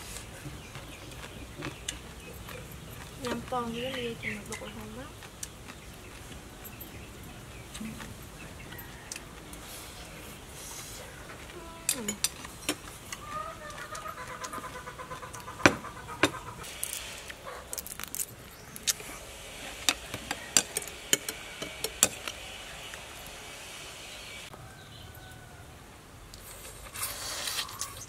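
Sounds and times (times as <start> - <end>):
crab shells cracking: 16.7 - 19.0.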